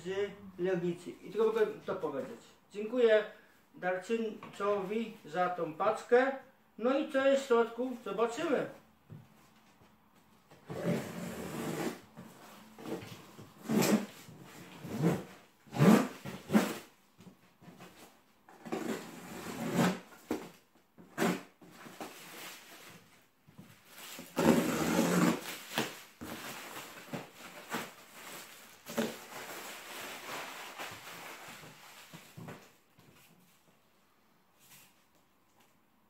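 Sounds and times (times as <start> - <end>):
plastic wrapping ripping: 24.0 - 32.2.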